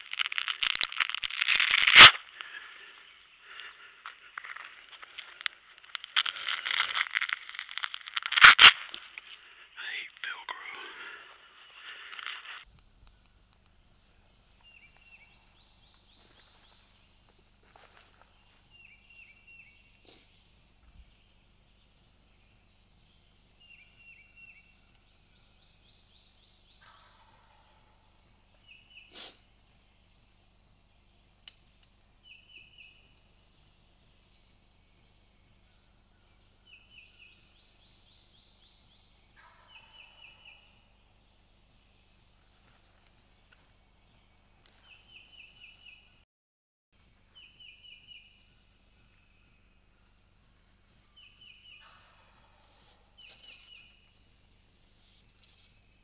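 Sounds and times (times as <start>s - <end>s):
songbirds chirping: 2.2s - 46.2s, 47.0s - 56.0s
distant turkey gobbling: 26.8s - 28.0s.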